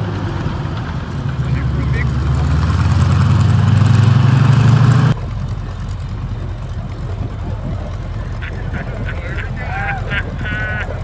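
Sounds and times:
tank engine running: 0:00.0 - 0:11.0.

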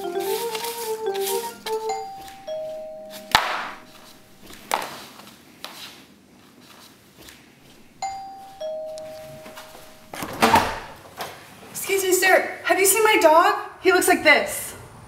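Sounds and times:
two-note doorbell chime: 0:00.0 - 0:04.6, 0:08.0 - 0:10.3
footsteps on wooden floor: 0:00.0 - 0:05.3, 0:07.6 - 0:11.0.

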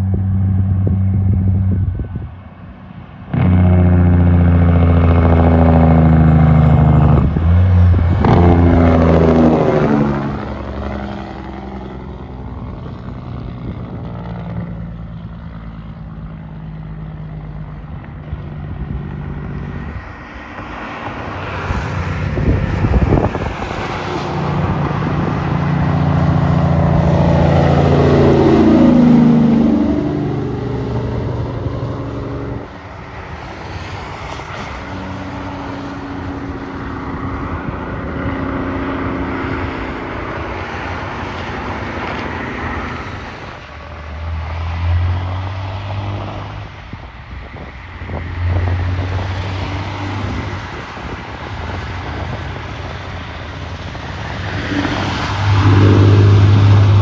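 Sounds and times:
diesel engine rumble: 0:00.0 - 0:57.0.

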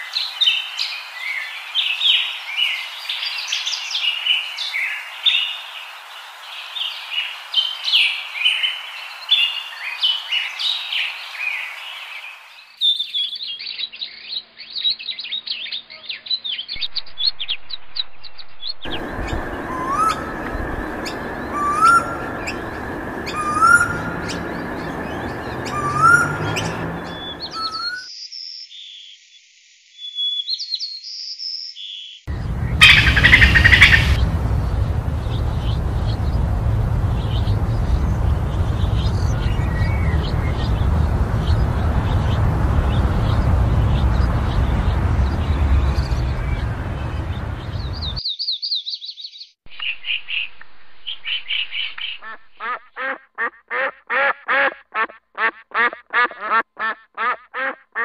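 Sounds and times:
birds singing and calling: 0:06.6 - 0:29.1, 0:30.0 - 0:52.9.

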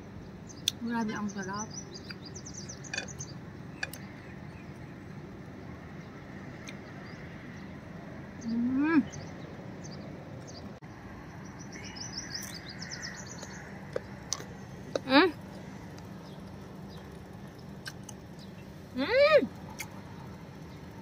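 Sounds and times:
outdoor background noise: 0:00.0 - 0:21.0
small birds chirping: 0:00.0 - 0:21.0
woman humming: 0:08.5 - 0:09.1.

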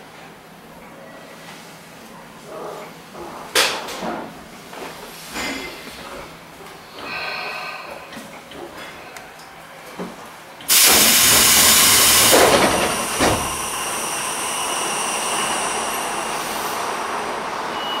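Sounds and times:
pneumatic hiss: 0:10.7 - 0:17.0
train doors air rush: 0:10.7 - 0:18.0.

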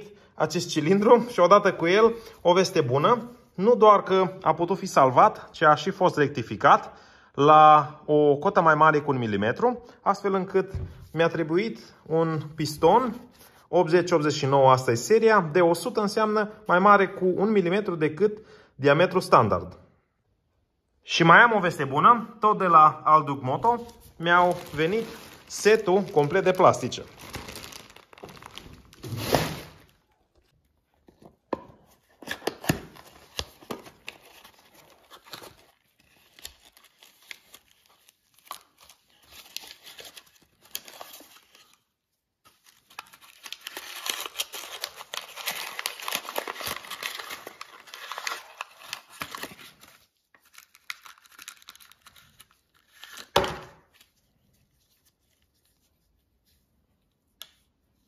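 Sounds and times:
packaging crinkling and rustling: 0:23.6 - 0:31.4, 0:32.1 - 0:41.9, 0:42.5 - 0:55.8
loud packaging rips: 0:24.4 - 0:30.0, 0:42.7 - 0:53.9.

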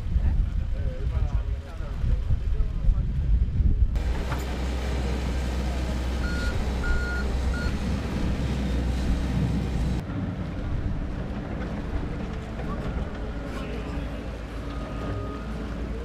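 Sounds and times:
excavator diesel engine running: 0:04.0 - 0:16.0
high warning alarm beeps: 0:06.2 - 0:07.8.

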